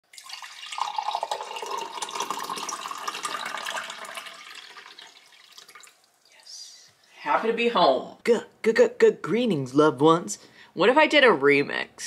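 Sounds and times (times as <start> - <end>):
running water: 0.0 - 7.2.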